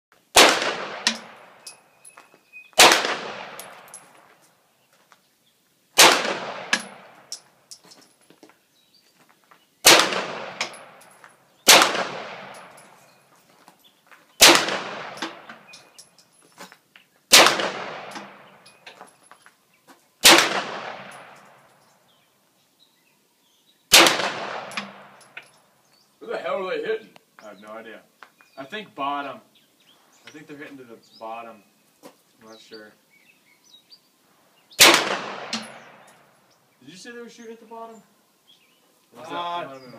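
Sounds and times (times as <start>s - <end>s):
pistol shots echoing: 0.3s - 1.8s, 2.8s - 4.2s, 6.0s - 7.4s, 9.8s - 12.9s, 14.4s - 15.9s, 17.3s - 18.6s, 20.2s - 21.7s, 23.9s - 25.4s, 34.8s - 36.2s.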